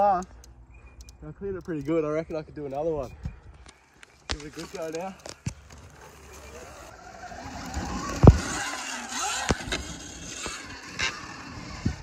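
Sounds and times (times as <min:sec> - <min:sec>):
sharp thumps: 0:04.2 - 0:12.0
electric motorbike motor whining: 0:04.7 - 0:12.0.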